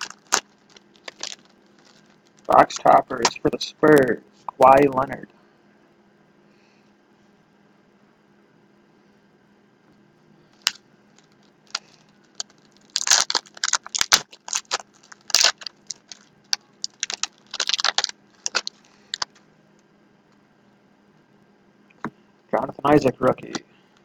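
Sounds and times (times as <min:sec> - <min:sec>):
wrapper crinkling and tearing: 0:00.0 - 0:03.4, 0:10.6 - 0:19.4.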